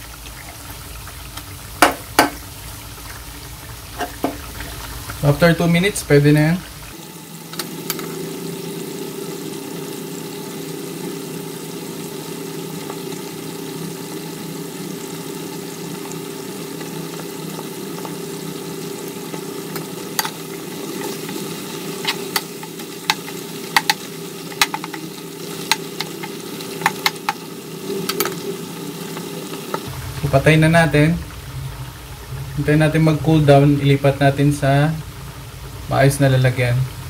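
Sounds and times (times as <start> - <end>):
fish frying in oil: 0.0 - 37.0
steady low hum: 29.8 - 37.0.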